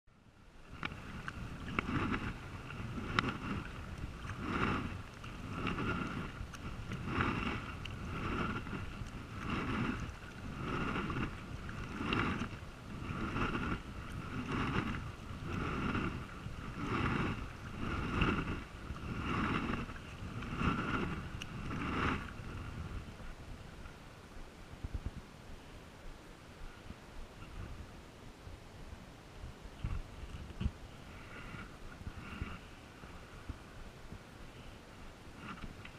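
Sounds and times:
paddle splashing through water: 0:00.6 - 0:24.0.

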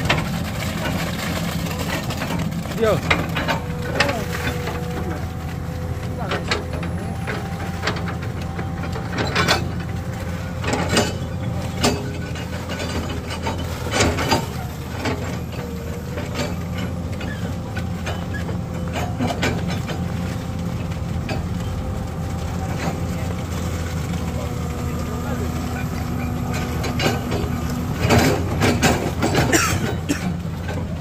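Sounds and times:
heavy vehicle engine idling: 0:00.0 - 0:31.0
sharp knocks and clatters: 0:06.0 - 0:24.8, 0:25.5 - 0:30.9.

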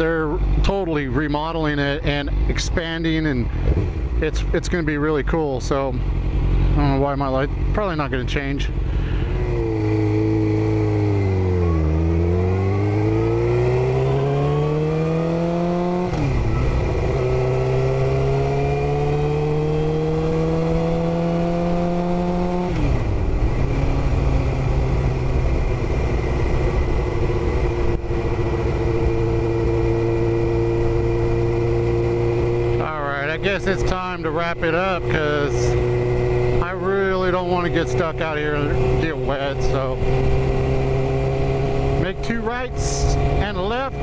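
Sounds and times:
motorcycle engine accelerating: 0:00.0 - 0:44.0.

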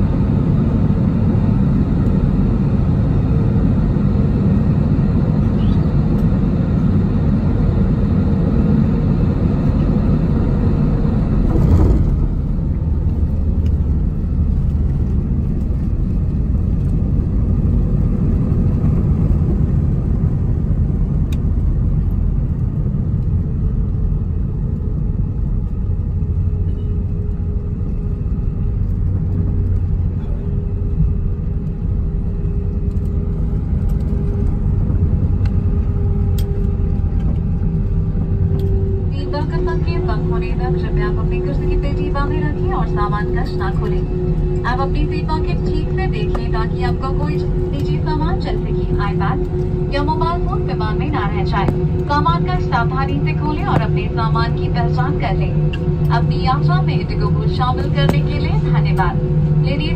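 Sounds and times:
aircraft cabin rumble: 0:00.0 - 0:59.9.

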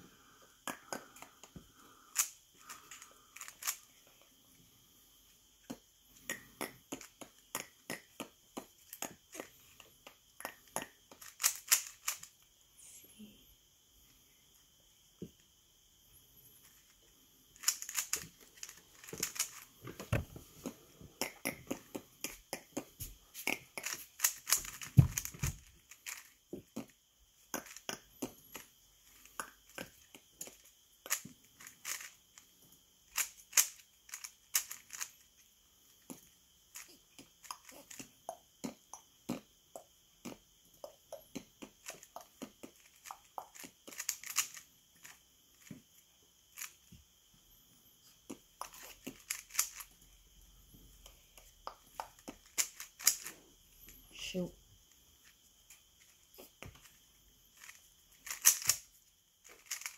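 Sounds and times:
puzzle cube clicking: 0:00.6 - 0:04.1, 0:05.6 - 0:12.4, 0:17.6 - 0:26.9, 0:27.5 - 0:32.2, 0:33.1 - 0:35.2, 0:36.0 - 0:45.7, 0:48.3 - 0:50.0, 0:51.0 - 0:53.4, 0:57.6 - 0:59.9.

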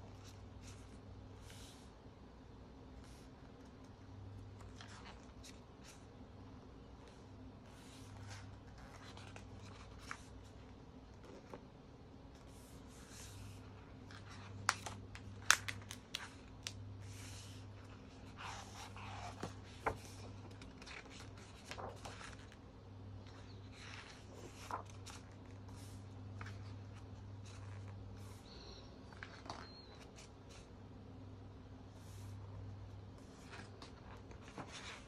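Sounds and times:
faint low hum: 0:00.0 - 0:35.0
pages turning and rustling: 0:03.0 - 0:06.0, 0:07.1 - 0:11.7, 0:12.4 - 0:22.6, 0:23.2 - 0:30.7, 0:33.2 - 0:35.0.

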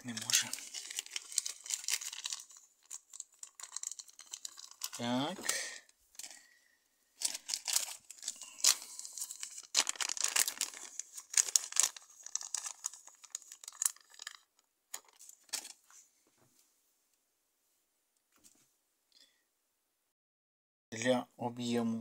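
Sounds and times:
plastic packet crinkling: 0:00.0 - 0:06.5, 0:07.2 - 0:15.8.

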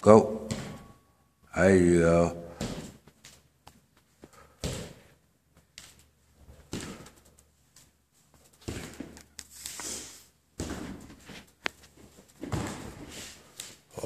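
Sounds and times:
footfalls on wooden floor: 0:10.6 - 0:13.4.

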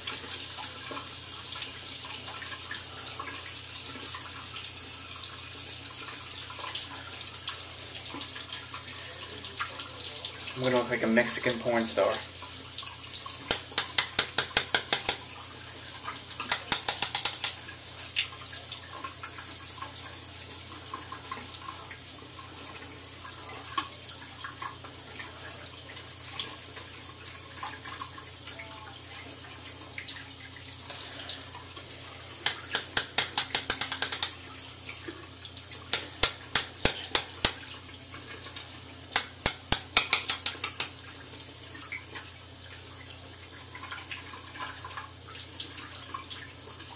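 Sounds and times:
tap running into sink: 0:13.3 - 0:15.3, 0:16.3 - 0:18.4, 0:32.4 - 0:34.4, 0:35.9 - 0:37.7, 0:39.1 - 0:41.1.

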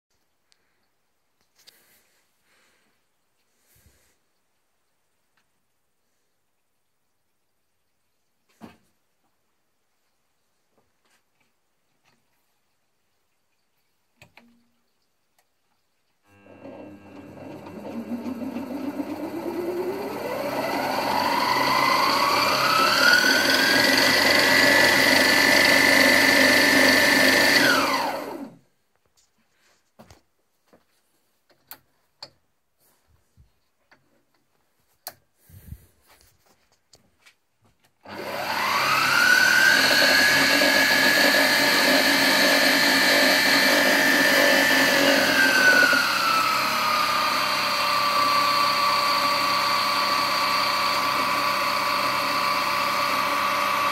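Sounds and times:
drilling machine motor whining: 0:16.3 - 0:28.6, 0:38.1 - 0:53.9.

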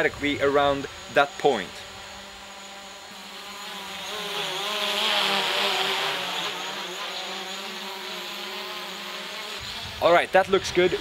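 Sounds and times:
drone propeller whine: 0:00.0 - 0:11.0.

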